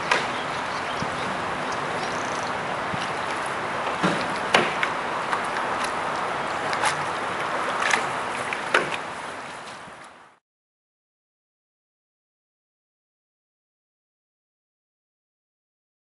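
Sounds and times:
wind noise on microphone: 0.0 - 10.3
canoe paddle knocks and splashes: 2.9 - 9.2.

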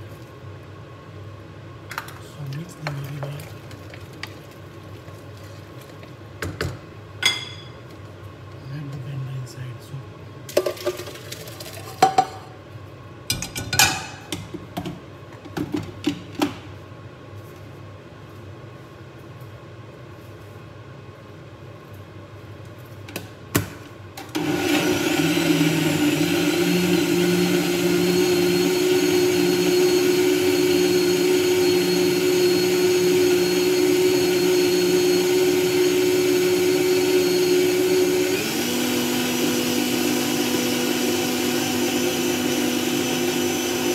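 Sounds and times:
blender motor running: 24.3 - 43.9.

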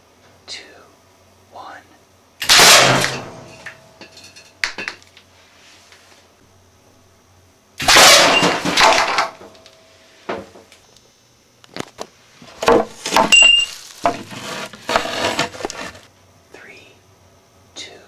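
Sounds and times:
air cannon blast: 2.4 - 3.2
projectile smashing into target: 2.4 - 3.4, 7.8 - 8.9
knocks and rustles: 11.7 - 16.1.

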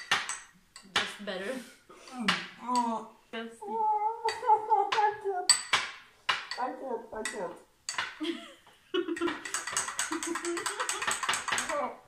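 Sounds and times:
metal spoon clinking against glass: 0.0 - 0.9, 5.5 - 5.8, 9.2 - 11.7.

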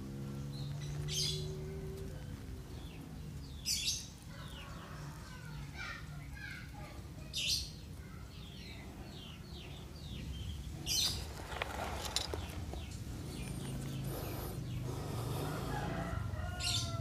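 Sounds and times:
small bird chirping: 0.1 - 17.0
brief rustle: 10.9 - 13.0.

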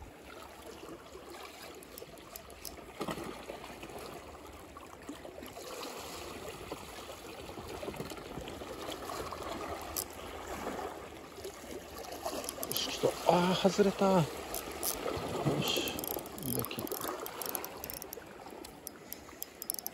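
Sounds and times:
water lapping against rocks: 0.0 - 19.9
faint clicks: 1.8 - 2.8, 12.0 - 12.9, 14.5 - 15.0, 15.9 - 19.9.

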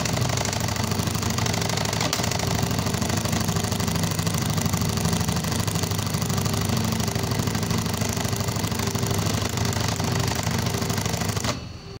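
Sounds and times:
sewing machine stitching: 0.0 - 11.7.

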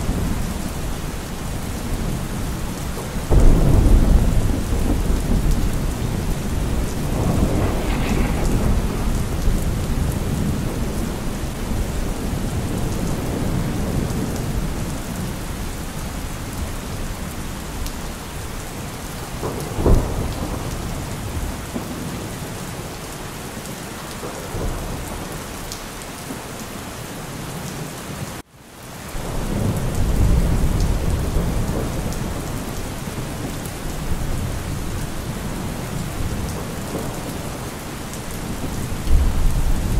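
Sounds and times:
rolling thunder rumbles: 0.0 - 22.9, 29.2 - 39.9
steady rain: 0.0 - 39.9
sharp thunder crack: 3.3 - 14.2.

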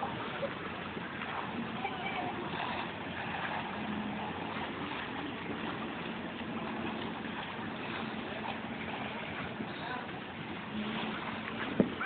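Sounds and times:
boat engine humming: 0.0 - 12.0
harbour noise: 0.0 - 12.0.

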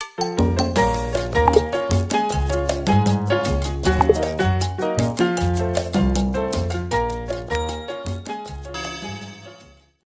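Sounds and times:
background music with bass line: 0.9 - 7.5.

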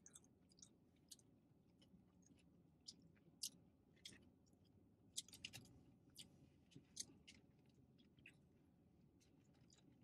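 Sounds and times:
chewing and finger-licking: 0.0 - 10.0
faint low hum: 0.0 - 10.0.

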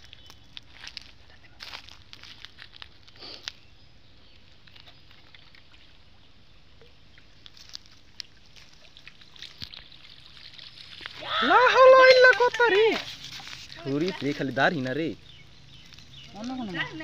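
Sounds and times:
bamboo pole clicks and rustles: 0.0 - 3.6, 4.4 - 5.8, 7.2 - 11.2, 12.0 - 15.0.

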